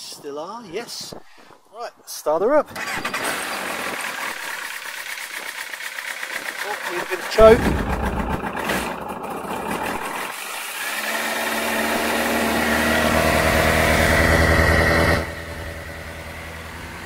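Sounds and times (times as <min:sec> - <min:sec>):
motorcycle engine idling: 0:04.1 - 0:10.3.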